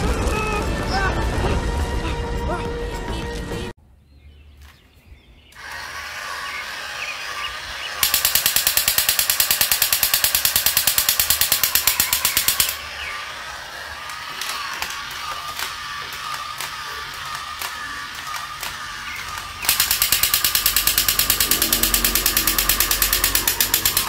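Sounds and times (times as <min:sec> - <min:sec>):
toy motor and gears whirring: 0:05.6 - 0:24.0
electronic machine-gun sound effect: 0:07.9 - 0:13.4, 0:14.3 - 0:24.0.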